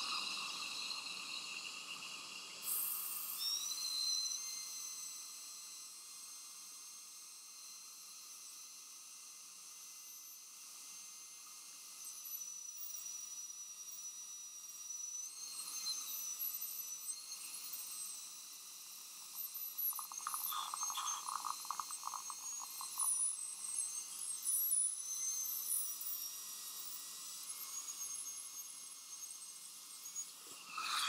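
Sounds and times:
dental drill whining: 0:19.2 - 0:23.7, 0:30.0 - 0:31.0.

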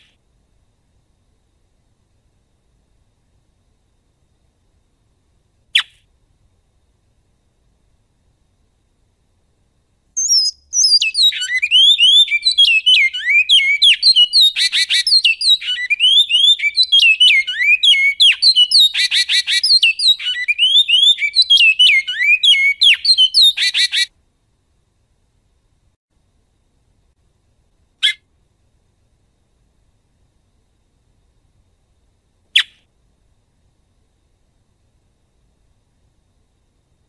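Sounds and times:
finch singing whistled song: 0:10.2 - 0:24.1, 0:32.6 - 0:32.8.

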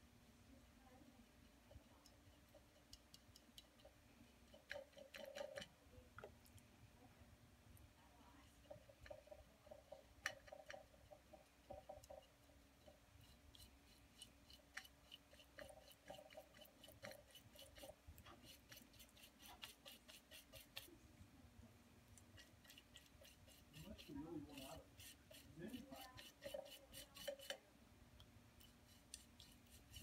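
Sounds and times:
paintbrush scrubbing on plate: 0:01.4 - 0:05.8, 0:08.4 - 0:21.0, 0:22.2 - 0:27.7, 0:28.5 - 0:30.0.

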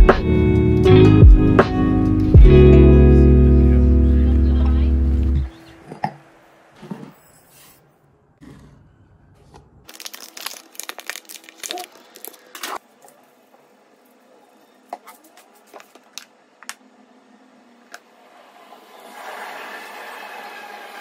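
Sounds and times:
plastic packaging crinkling and tearing: 0:09.9 - 0:12.8.

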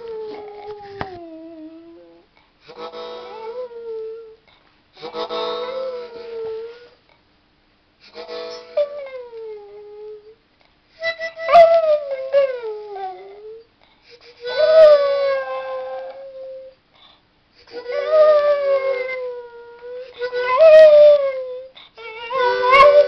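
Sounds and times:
small dog howling: 0:00.0 - 0:02.2, 0:11.3 - 0:13.7, 0:14.5 - 0:16.8, 0:17.8 - 0:23.0.

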